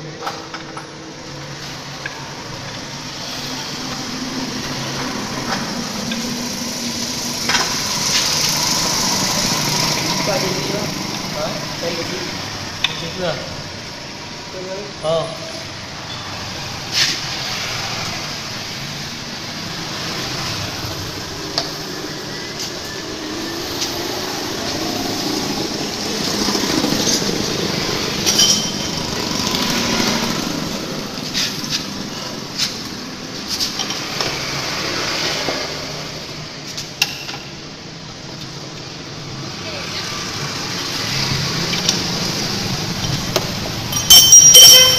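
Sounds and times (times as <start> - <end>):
scooter engine running: 3.5 - 12.2.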